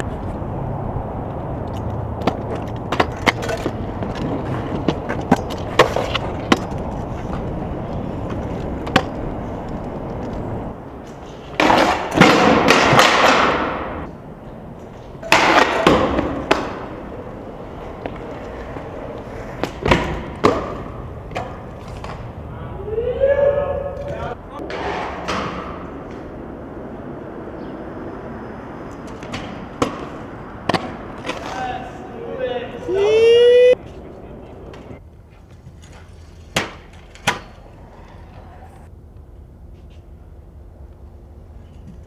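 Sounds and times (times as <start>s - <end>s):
skateboard wheels rolling on concrete: 0.0s - 42.0s
skateboard scraping concrete: 1.3s - 22.6s, 24.6s - 33.1s.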